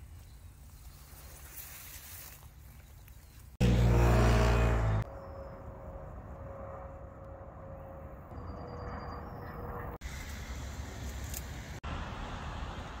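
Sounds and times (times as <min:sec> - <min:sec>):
distant aircraft rumble: 0:03.6 - 0:13.0.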